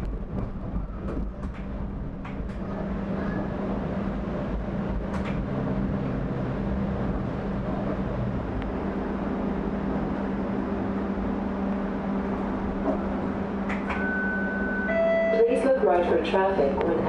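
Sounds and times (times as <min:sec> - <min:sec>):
low rumble: 0:00.0 - 0:17.0
streetcar running hum: 0:00.0 - 0:17.0.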